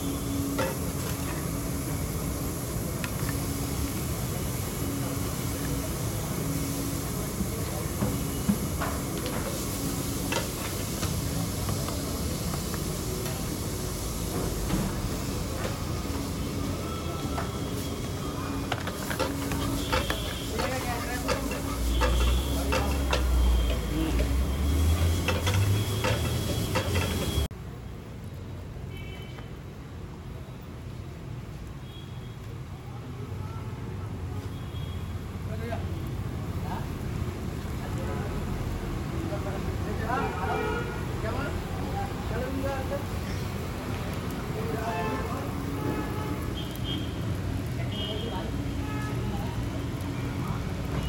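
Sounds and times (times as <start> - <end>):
eggs sizzling in a pan: 0.0 - 27.5, 36.0 - 51.0
spatula scraping metal pan: 18.8 - 27.5.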